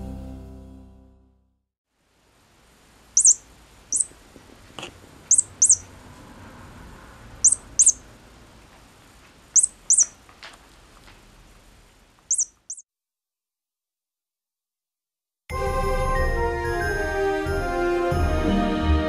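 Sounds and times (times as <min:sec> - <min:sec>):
cat toy chirping: 0:03.2 - 0:04.1, 0:05.3 - 0:05.9, 0:07.4 - 0:08.0, 0:09.6 - 0:10.2, 0:12.3 - 0:12.8.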